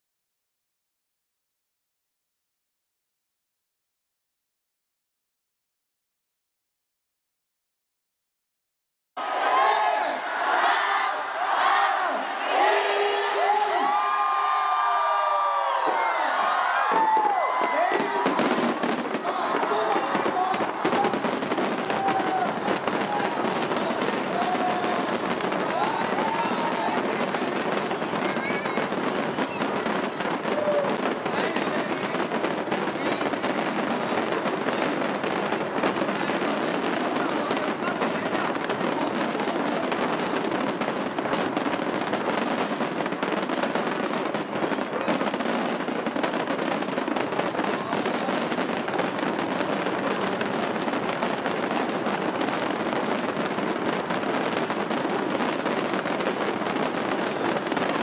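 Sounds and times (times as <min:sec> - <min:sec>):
fireworks crackling and popping: 0:10.5 - 0:58.0.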